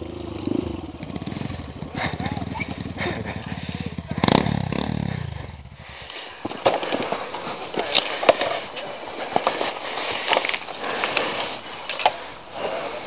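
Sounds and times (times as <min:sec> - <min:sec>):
rough noisy rustle: 0:00.0 - 0:13.0.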